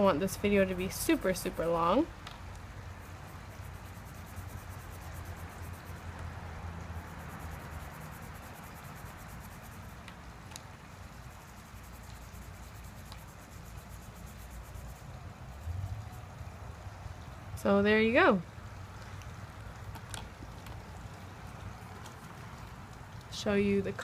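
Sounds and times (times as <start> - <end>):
low steady hum: 0.0 - 24.0
marker rubbing on paper: 3.1 - 6.0, 11.3 - 15.1.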